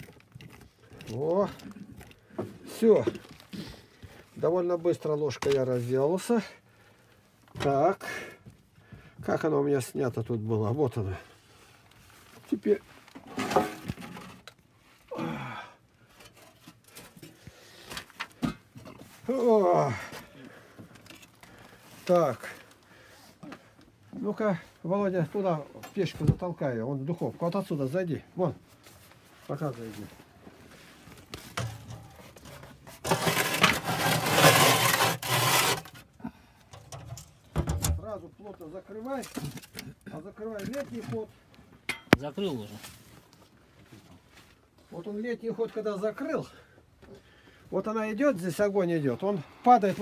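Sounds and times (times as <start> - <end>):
pumpkin scraping in brick oven: 12.5 - 14.5, 31.5 - 36.1
man sighing: 15.1 - 15.9.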